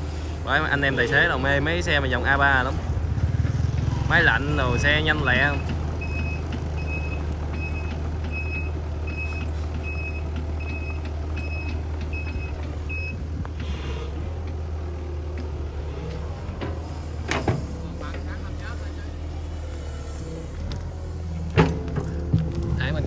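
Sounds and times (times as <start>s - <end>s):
excavator diesel engine running: 0.0s - 23.0s
travel alarm beeping: 6.0s - 13.2s.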